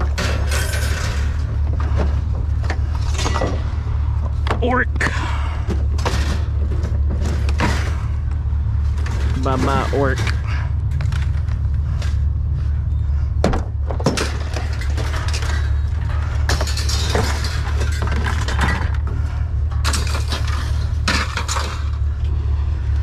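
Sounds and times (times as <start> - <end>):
scrap metal clanking: 0.0 - 4.2, 13.7 - 23.0
low hum: 0.0 - 23.0.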